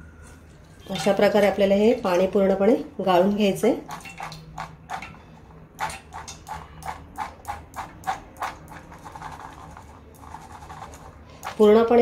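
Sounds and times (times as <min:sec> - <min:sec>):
wet peanuts shaken in metal strainer: 0:05.8 - 0:11.8.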